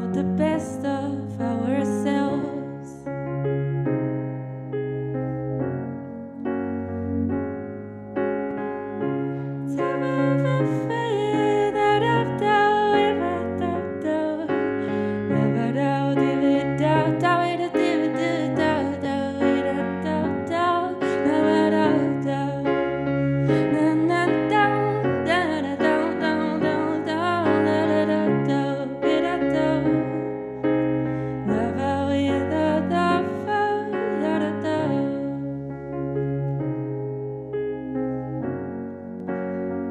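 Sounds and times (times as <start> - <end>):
woman singing: 0.0 - 3.0, 9.7 - 30.4, 31.4 - 35.6
electric piano playing: 0.0 - 39.9.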